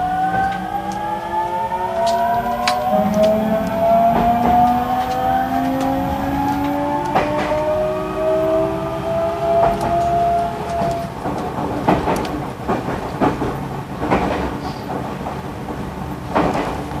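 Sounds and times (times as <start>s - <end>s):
electric train motor whine: 0.0s - 11.2s
train wheels clacking over rail joints: 1.9s - 17.0s.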